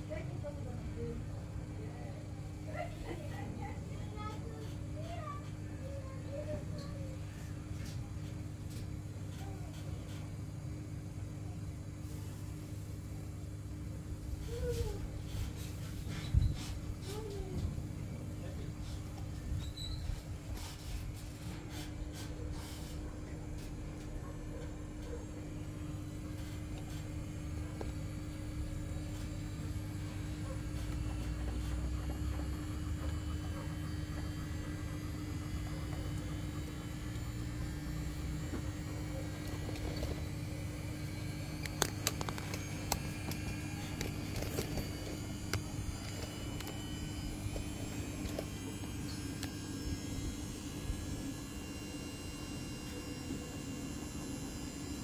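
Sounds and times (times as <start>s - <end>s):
washing machine running: 0.0s - 55.0s.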